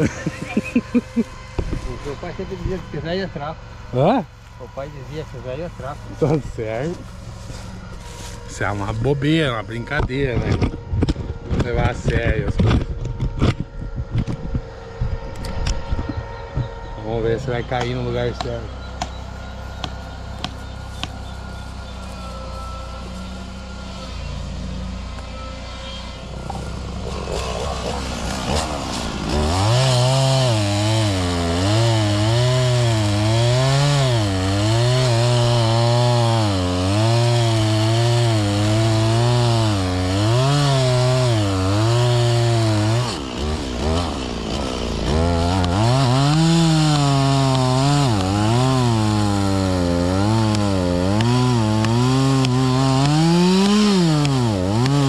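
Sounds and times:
chainsaw cutting wood: 0.0 - 4.6, 19.8 - 55.0.

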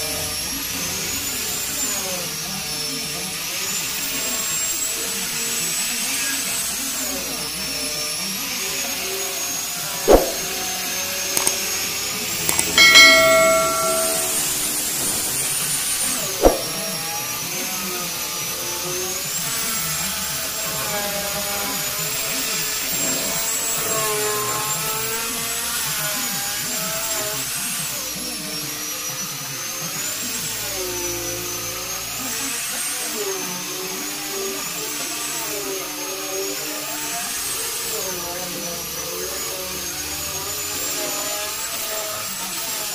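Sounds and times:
sharp click: 10.1 - 10.4.

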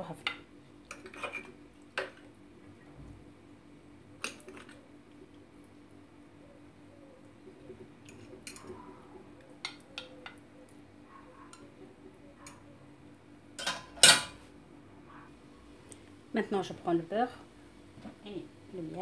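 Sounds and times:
fork scraping earthenware dish: 0.9 - 1.6.

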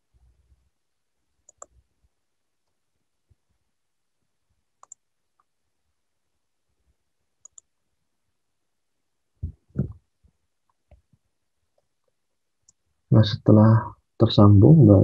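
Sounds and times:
mouse and keyboard clicks: 1.4 - 1.8, 4.8 - 5.5, 7.4 - 7.7.

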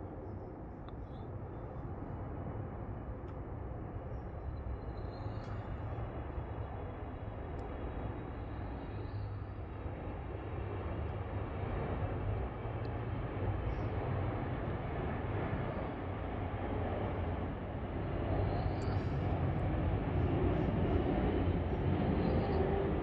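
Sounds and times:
low outdoor rumble: 0.0 - 23.0.

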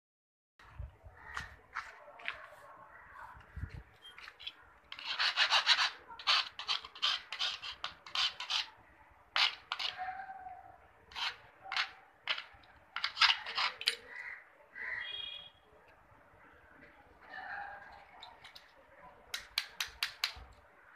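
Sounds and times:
metal rasping against metal: 4.2 - 8.8, 9.4 - 10.1, 11.1 - 14.1.

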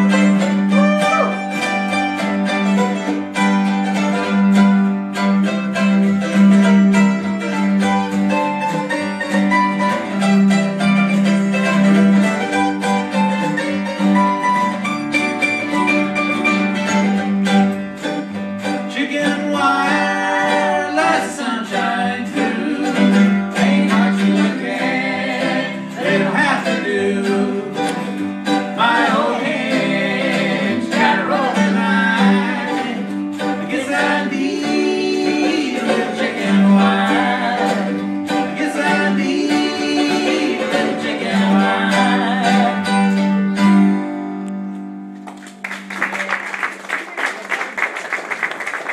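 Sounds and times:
lap steel string instrument: 0.0 - 45.8
acoustic guitars strummed and picked: 0.0 - 45.9
plucked upright bass: 0.0 - 46.0
man singing: 18.9 - 28.0, 28.8 - 43.0.

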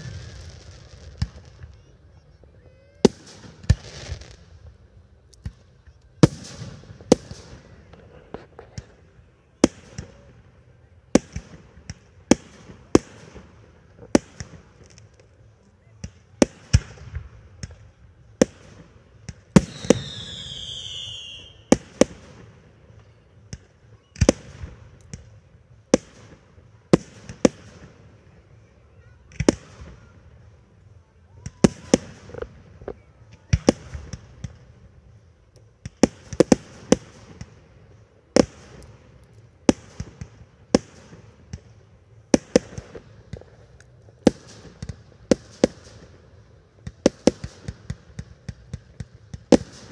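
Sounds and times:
fireworks bursting: 0.0 - 49.9
firework whistle falling: 19.7 - 21.7.

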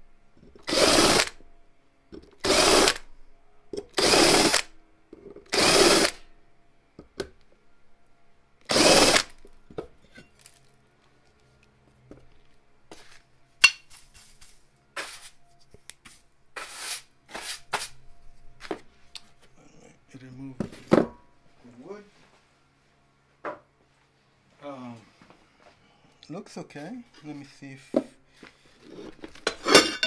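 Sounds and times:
cordless drill spinning: 0.6 - 1.4, 2.4 - 3.1, 4.0 - 4.7, 5.5 - 6.2, 8.7 - 9.4
hand brush sweeping bench: 13.8 - 18.0.

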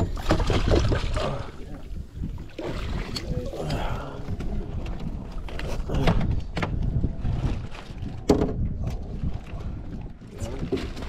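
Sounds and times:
water against boat hull: 0.0 - 11.0
wind on microphone: 0.0 - 11.0
knocks on boat: 8.2 - 8.7.

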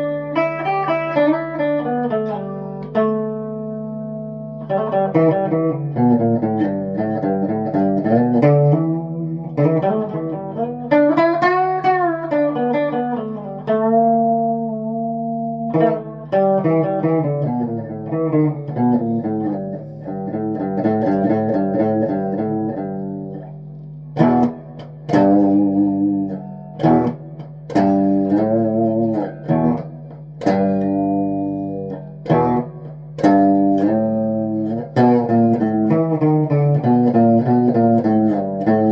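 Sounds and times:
electric guitar solo: 0.0 - 38.9.

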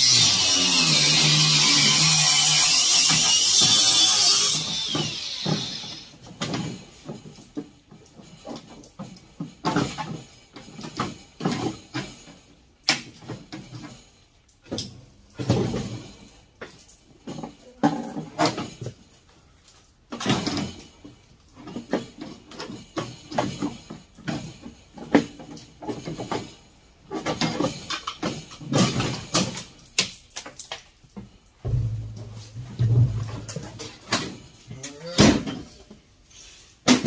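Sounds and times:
sheet metal knocking and rattling: 31.6 - 34.6.

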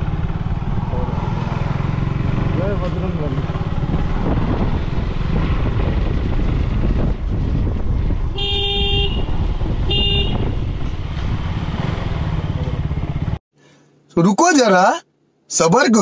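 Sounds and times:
motorcycle engine running: 0.0 - 13.4
motorcycle horn toots: 8.3 - 10.9.

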